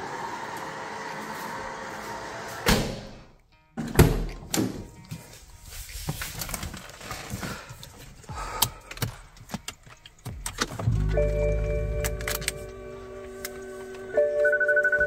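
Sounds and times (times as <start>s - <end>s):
diesel engine starting: 10.7s - 14.1s.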